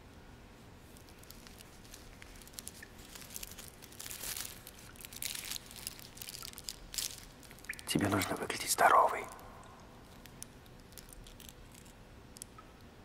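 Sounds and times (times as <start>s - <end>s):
foil wrapper crinkling: 0.8s - 8.6s, 10.0s - 12.6s.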